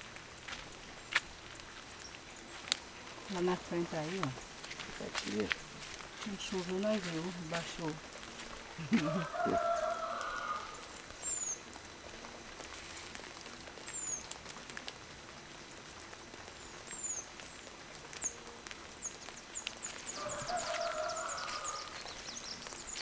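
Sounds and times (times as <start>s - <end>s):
small birds chirping: 0.1s - 11.8s, 13.8s - 14.4s, 16.4s - 23.0s
chicken calling: 8.8s - 10.8s, 20.1s - 22.1s.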